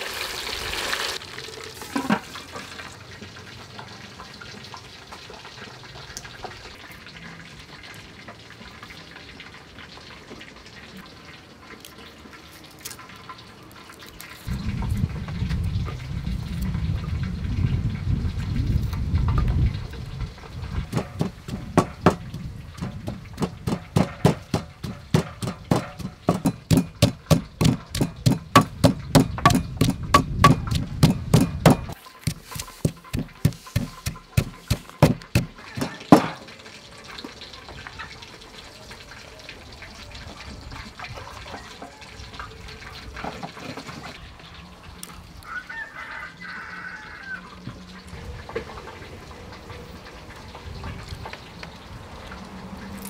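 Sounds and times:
pestle pounding in wooden mortar: 20.8s - 36.4s.

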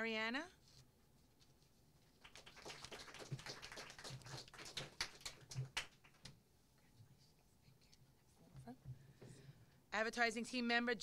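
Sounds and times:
light applause: 2.2s - 6.3s.

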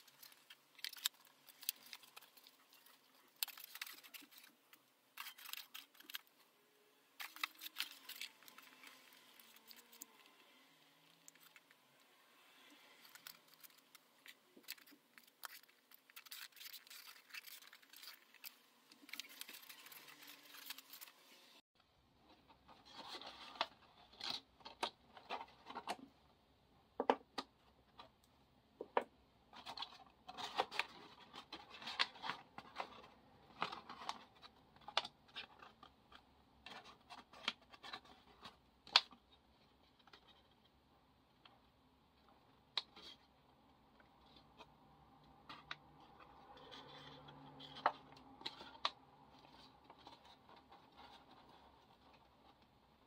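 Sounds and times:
paper rustling and scraping: 0.0s - 6.5s, 7.2s - 21.6s, 22.3s - 24.5s, 45.4s - 53.0s
paper crisp clicks and crinkles: 0.0s - 6.6s, 7.2s - 11.8s, 12.7s - 21.4s, 29.6s - 40.7s, 45.4s - 53.0s.

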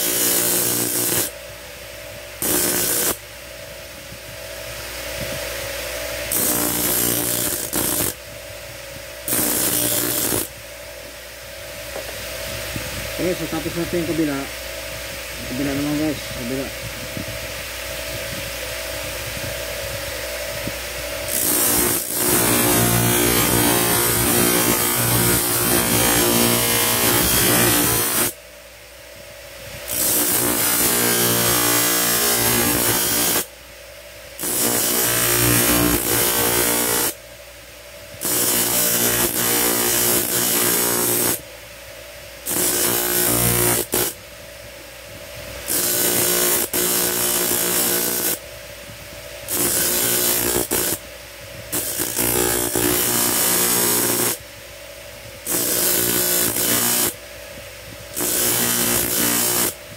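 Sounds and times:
grinding wheel grinding steel: 0.0s - 1.3s, 2.4s - 3.2s, 6.3s - 8.2s, 9.3s - 10.5s, 21.3s - 28.3s, 29.9s - 33.4s, 42.5s - 44.1s, 45.7s - 48.4s, 49.5s - 51.0s, 51.8s - 54.4s, 58.2s - 59.8s
motor hum: 0.0s - 28.4s.

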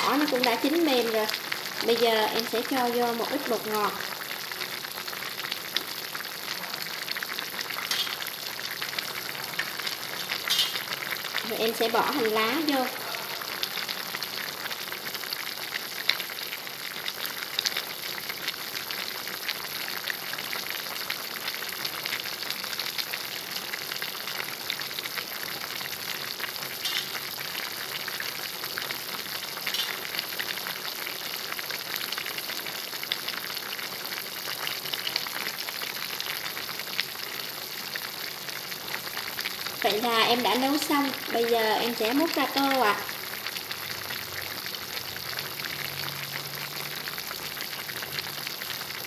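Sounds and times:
soup bubbling in a pot: 0.0s - 49.0s.

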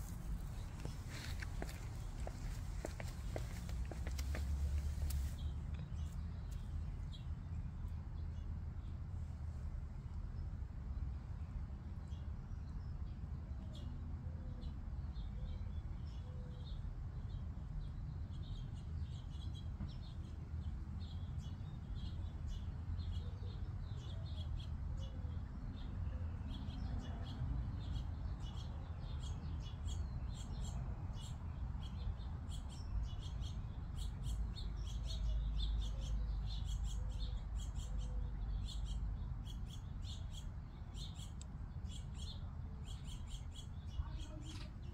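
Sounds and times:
small birds chirping: 0.0s - 9.4s, 10.0s - 44.9s.

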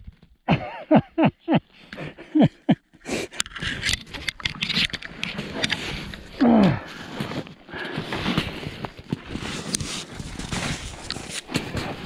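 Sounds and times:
snowshoes crunching through snow: 5.3s - 12.0s.

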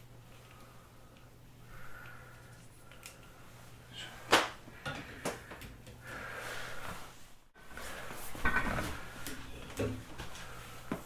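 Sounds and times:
heavy breathing through mask: 0.5s - 8.3s.

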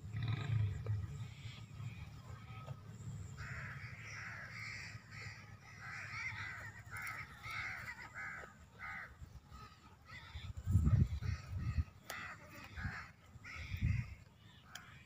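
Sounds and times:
bird calling: 0.0s - 15.0s.

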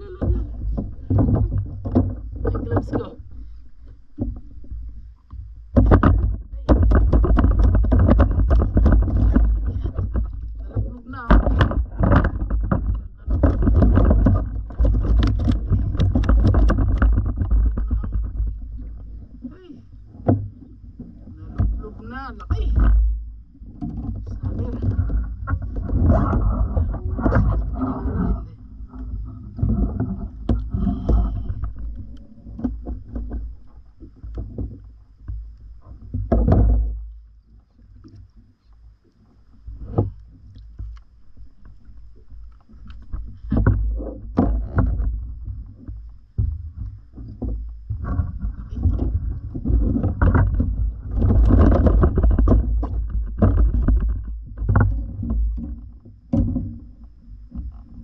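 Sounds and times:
wind rumble on microphone: 0.0s - 3.5s, 4.2s - 58.0s
water lapping against hull: 0.0s - 58.0s
knocks and rustles of handling: 3.9s - 28.0s, 39.8s - 58.0s.

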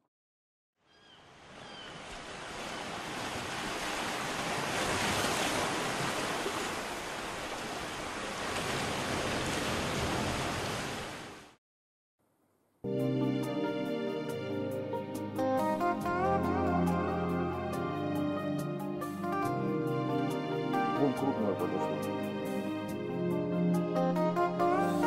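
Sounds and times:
sea waves washing: 1.9s - 11.5s.

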